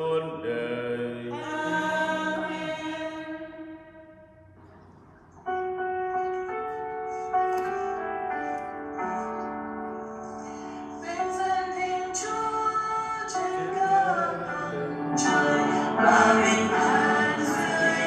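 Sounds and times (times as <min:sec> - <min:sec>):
people singing: 0:00.0 - 0:03.6, 0:11.0 - 0:18.0
keyboard chords: 0:00.0 - 0:18.0.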